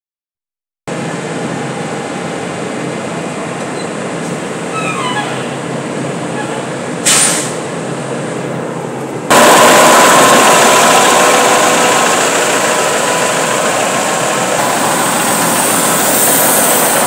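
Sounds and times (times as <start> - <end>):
diesel truck engine running: 0.9 - 17.0
air brake hiss: 7.0 - 7.6.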